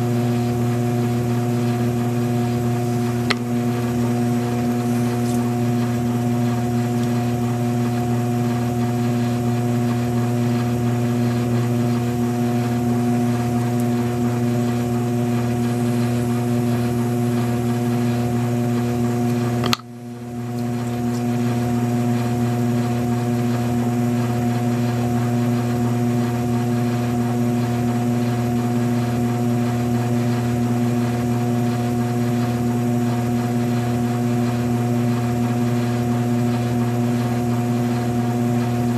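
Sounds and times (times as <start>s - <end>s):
potter's wheel motor humming: 0.0s - 38.9s
sharp click: 19.6s - 19.9s.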